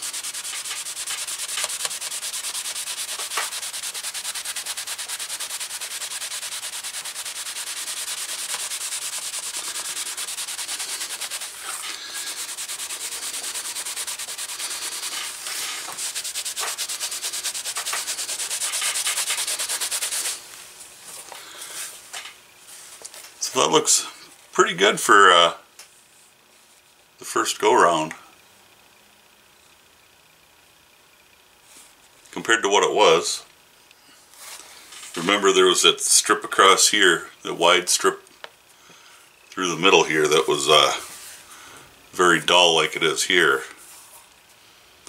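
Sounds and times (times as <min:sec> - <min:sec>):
pad scrubbing leather: 0:00.0 - 0:20.4.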